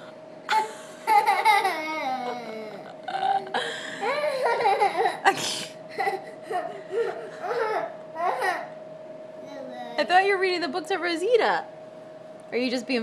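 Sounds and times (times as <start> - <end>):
little girl laughing and babbling: 1.5 - 2.9, 7.4 - 8.7.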